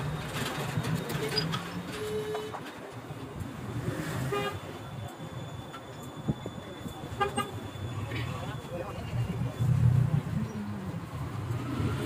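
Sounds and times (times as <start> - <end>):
street traffic noise: 0.0 - 12.0
vehicle horn toots: 4.2 - 4.8, 7.1 - 7.7.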